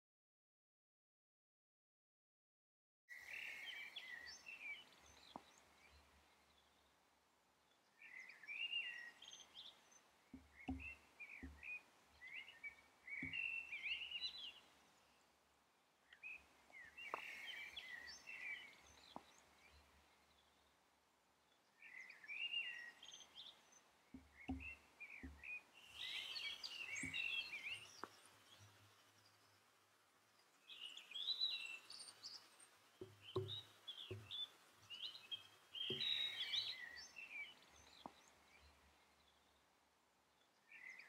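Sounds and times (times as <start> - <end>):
birds chirping and twittering: 3.1 - 15.4, 16.0 - 41.0
soft low thumps: 10.3 - 11.8, 24.1 - 25.5, 33.0 - 34.4.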